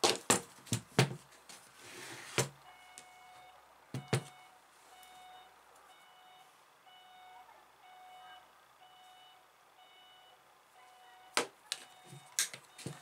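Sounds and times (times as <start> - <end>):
faint electronic beep: 2.6 - 13.0.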